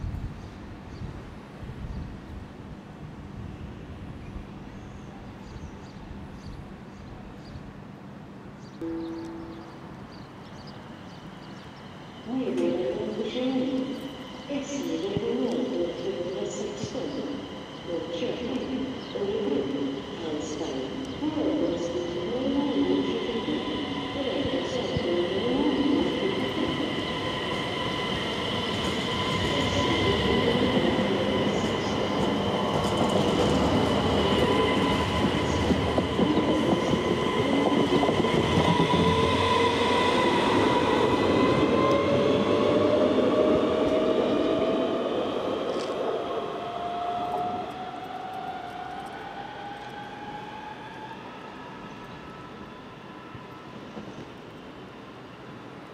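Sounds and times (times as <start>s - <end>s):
train wheels rumbling: 8.8s - 51.4s.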